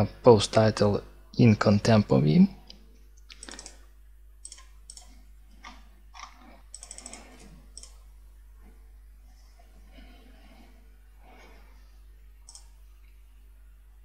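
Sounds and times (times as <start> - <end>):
faint low hum: 0.0 - 14.0
computer mouse clicks: 3.2 - 3.8, 4.4 - 8.0, 12.5 - 13.2.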